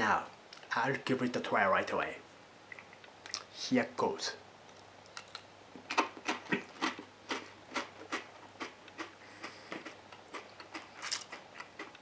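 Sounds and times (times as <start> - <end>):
potato chip crunching: 5.1 - 12.0.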